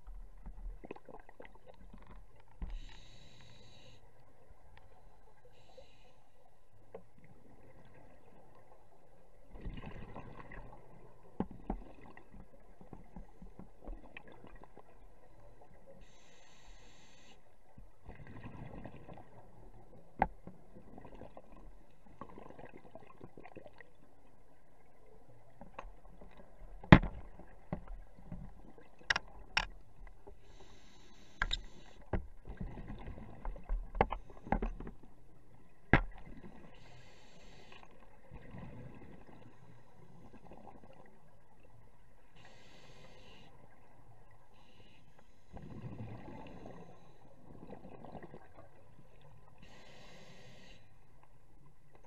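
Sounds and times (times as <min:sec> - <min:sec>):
regulator hiss on inhale: 0:02.6 - 0:04.2, 0:05.5 - 0:06.4, 0:16.0 - 0:17.6, 0:30.4 - 0:32.0, 0:36.8 - 0:38.0, 0:42.4 - 0:43.6, 0:44.5 - 0:45.6, 0:49.6 - 0:51.1
sharp clicks and knocks: 0:26.9 - 0:27.9.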